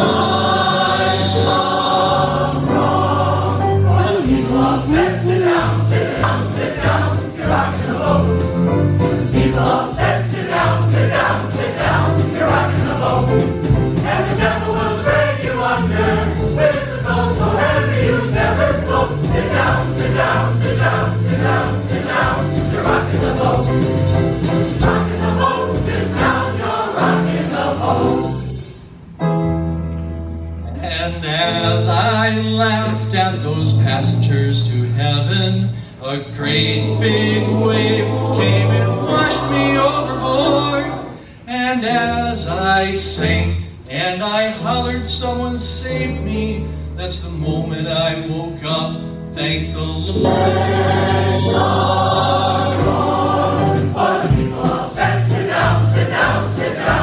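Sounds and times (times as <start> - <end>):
mixed choir singing show tune: 0.0 - 28.7, 36.2 - 41.5, 50.1 - 57.0
instrumental accompaniment with walking bass: 0.0 - 35.6, 41.8 - 57.0.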